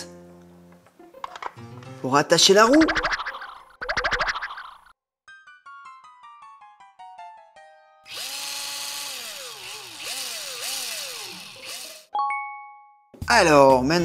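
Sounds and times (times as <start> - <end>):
toy power drill whirring: 8.1 - 12.1.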